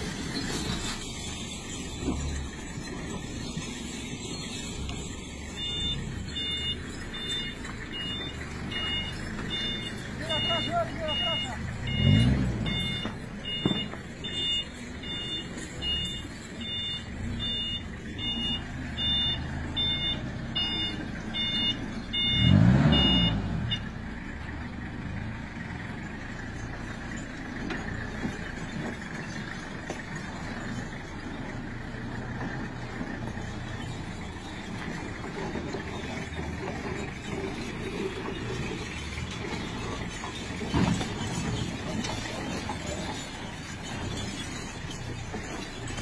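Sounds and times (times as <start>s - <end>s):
engine revving: 0.0s - 15.2s, 16.0s - 24.1s
vehicle engine running: 0.0s - 46.0s
electronic beeps: 5.5s - 23.9s.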